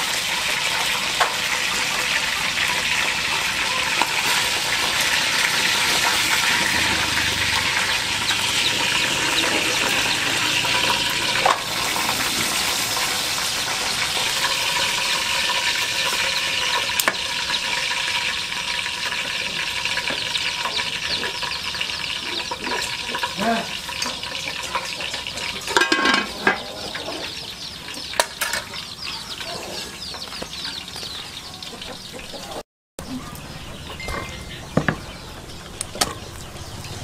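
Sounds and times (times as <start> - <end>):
utensil clinking against pot: 22.6 - 26.7.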